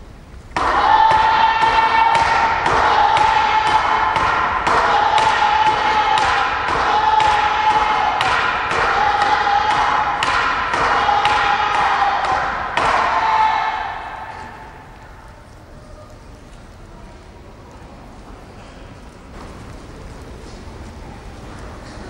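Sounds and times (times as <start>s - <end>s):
high shouted kiai: 0.6s - 15.2s.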